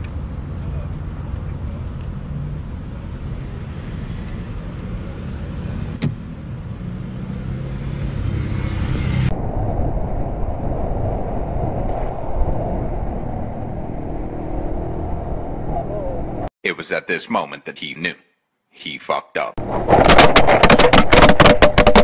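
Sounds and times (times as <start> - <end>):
cars passing: 0.0 - 10.9, 11.7 - 16.5
motorcycle riding with wind noise: 0.0 - 16.5, 19.6 - 22.0.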